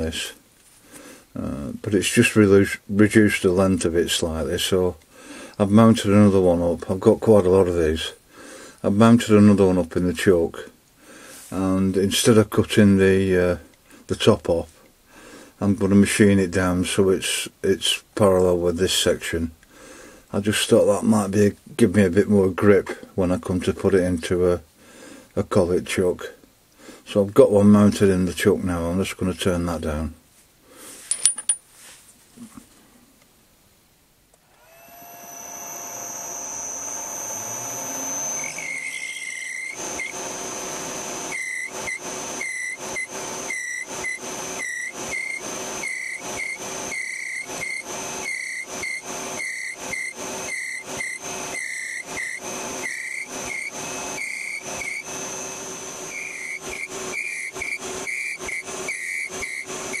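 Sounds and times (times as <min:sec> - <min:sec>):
metal lathe whining: 0:34.5 - 1:00.0
high squeal of cutting tool: 0:34.6 - 0:40.7, 0:41.3 - 1:00.0.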